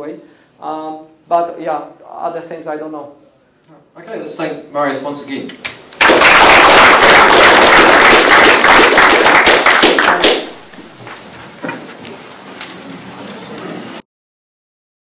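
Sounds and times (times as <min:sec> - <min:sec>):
audience applauding: 0:06.0 - 0:10.8.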